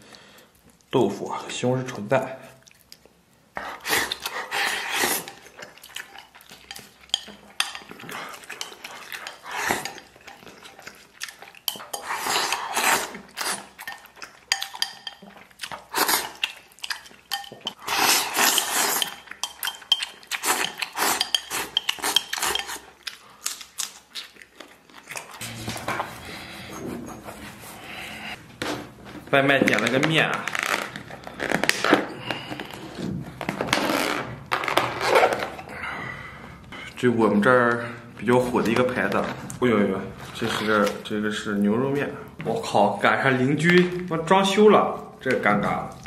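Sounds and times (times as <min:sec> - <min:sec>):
chopsticks clattering on ceramic bowl: 0:05.3 - 0:10.5, 0:13.8 - 0:15.4, 0:16.2 - 0:17.8, 0:18.6 - 0:22.8.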